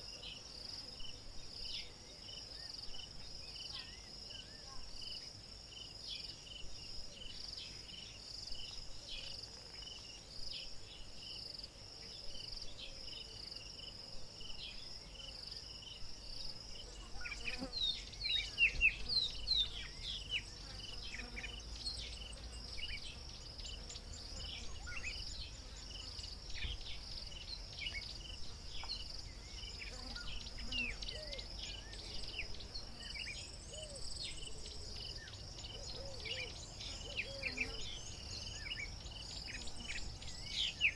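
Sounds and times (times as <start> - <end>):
insects trilling: 0.0 - 40.9.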